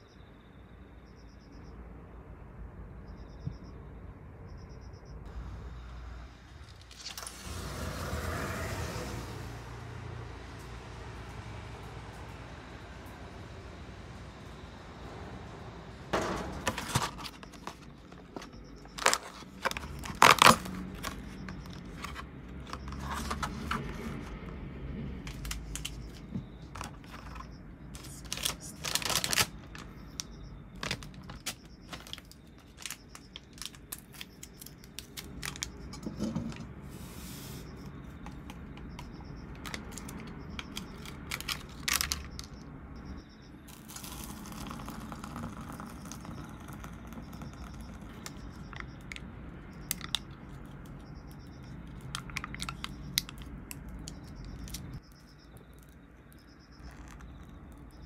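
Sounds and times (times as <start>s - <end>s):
objects being handled: 16.2s - 24.5s, 25.2s - 29.9s.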